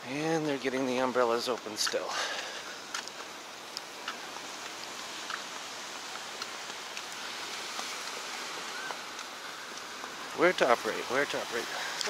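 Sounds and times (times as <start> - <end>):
footsteps on wooden boardwalk: 1.4 - 10.4
surf breaking on beach: 2.4 - 12.0.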